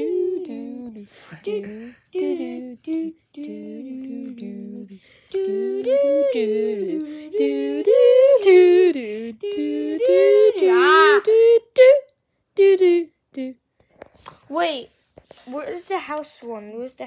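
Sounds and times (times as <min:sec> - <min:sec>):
person humming a tune: 0:00.0 - 0:13.6.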